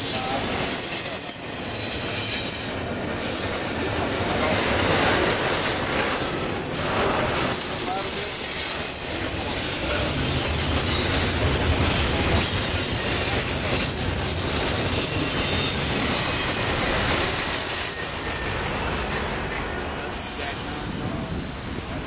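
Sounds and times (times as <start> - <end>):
train wheels rumbling on rails: 0.0 - 22.0
high wheel squeal: 5.2 - 22.0.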